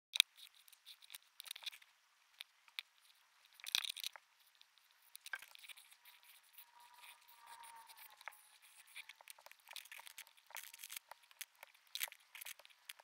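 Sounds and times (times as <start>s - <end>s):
pencil scratching on paper: 4.4s - 13.0s.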